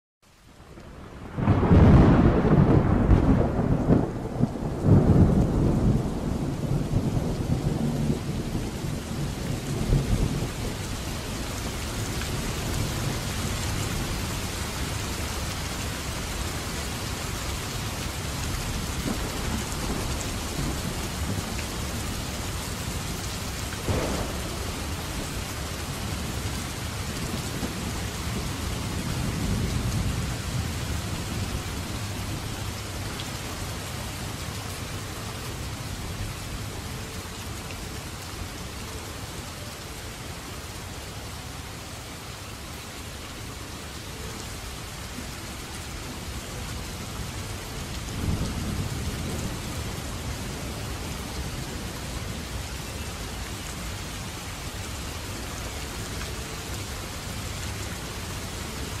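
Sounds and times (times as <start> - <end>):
heavy pouring rain: 0.2 - 59.0
thunder rumbling: 1.0 - 15.5, 18.1 - 32.8.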